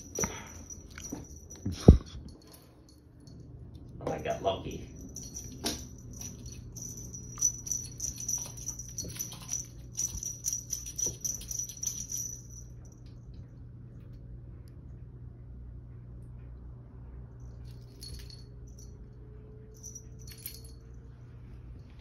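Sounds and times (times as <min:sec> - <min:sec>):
small metal bell jingling: 0:00.0 - 0:03.5, 0:04.2 - 0:13.2, 0:17.5 - 0:19.1, 0:19.7 - 0:21.0
low steady hum: 0:00.0 - 0:22.0.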